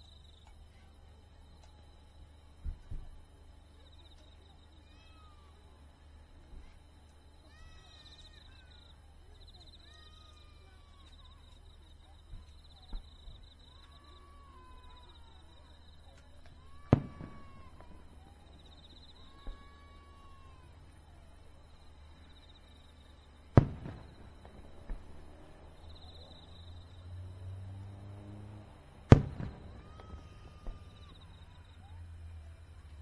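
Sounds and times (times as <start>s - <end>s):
insects chirping: 0.0s - 32.0s
firework shells bursting: 12.9s - 31.7s.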